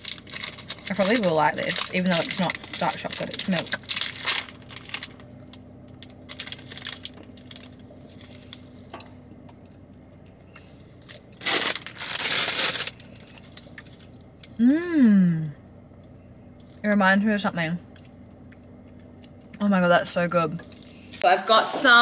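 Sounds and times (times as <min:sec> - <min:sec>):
wrapper crinkling: 0:00.0 - 0:08.9, 0:11.0 - 0:14.2.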